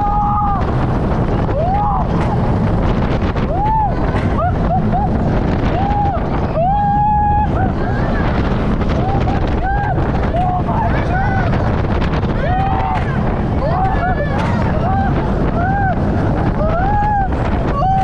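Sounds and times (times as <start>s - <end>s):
riders yelling and screaming: 0.0s - 2.6s, 3.2s - 18.0s
roller coaster train rumbling: 0.0s - 18.0s
wind rushing on microphone: 0.0s - 18.0s.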